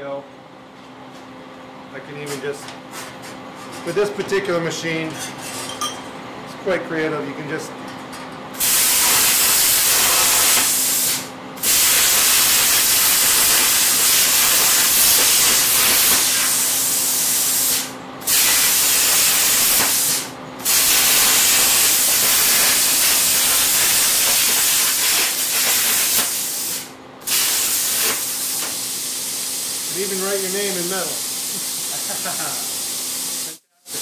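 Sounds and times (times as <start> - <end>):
plasma cutter hissing: 8.6 - 34.0.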